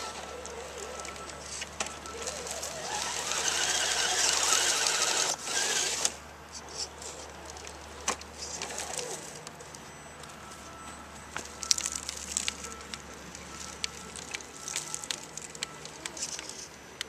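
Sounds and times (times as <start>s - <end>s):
toy car electric motor whining: 0.0s - 7.2s, 8.4s - 9.4s.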